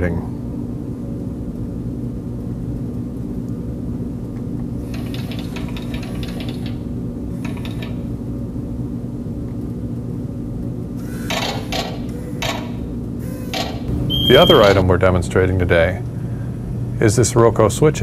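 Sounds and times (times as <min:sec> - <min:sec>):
steady low hum: 0:00.0 - 0:18.0
mechanical door sound bursts: 0:11.0 - 0:14.9.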